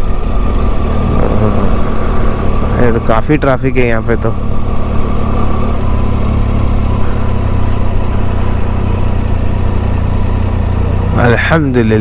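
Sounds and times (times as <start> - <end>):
motorcycle engine running: 0.0 - 12.0.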